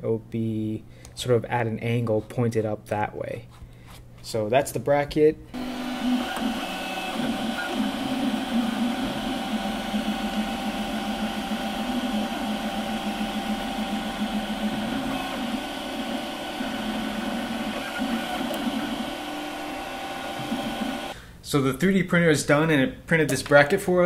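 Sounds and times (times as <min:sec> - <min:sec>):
stepper motors whirring: 0:05.6 - 0:21.2.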